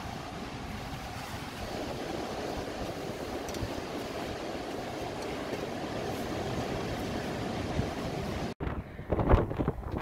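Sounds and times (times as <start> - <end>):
surf breaking on beach: 0.0 - 8.6
wind on microphone: 0.0 - 10.0.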